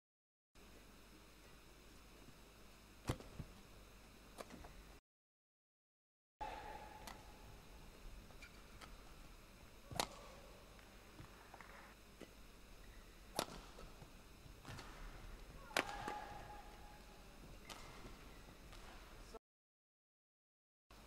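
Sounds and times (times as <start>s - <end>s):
racket hitting shuttlecock: 6.4s - 7.4s, 9.9s - 10.4s, 13.3s - 14.0s, 14.6s - 16.8s, 17.6s - 19.0s
court shoes squeaking: 8.2s - 9.2s.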